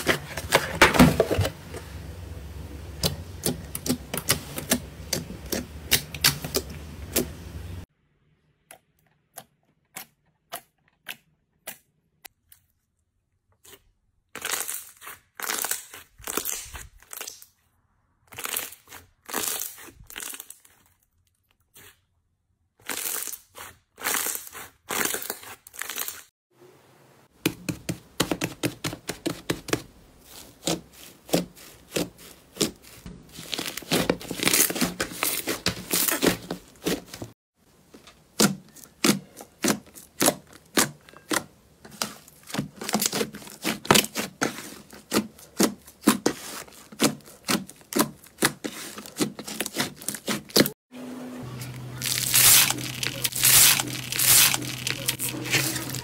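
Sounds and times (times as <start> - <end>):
foam beads crunching: 30.2 - 37.2, 51.6 - 56.0.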